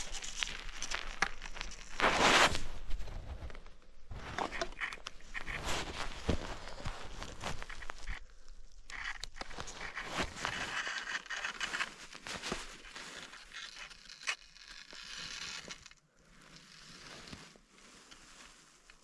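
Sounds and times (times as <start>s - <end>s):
footsteps crunching on snow: 0.8s - 8.3s.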